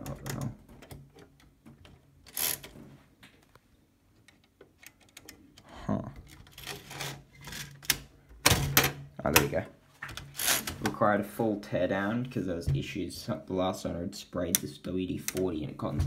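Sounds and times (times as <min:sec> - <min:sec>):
typewriter scrape or rattle: 0:02.3 - 0:02.7, 0:06.4 - 0:07.8, 0:10.2 - 0:10.8.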